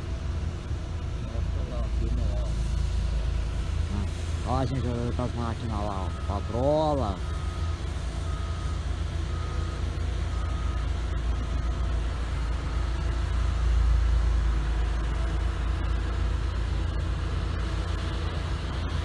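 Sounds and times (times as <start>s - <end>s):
heavy machinery low rumble: 0.0s - 19.0s
reversing alarm beeping: 4.0s - 13.8s.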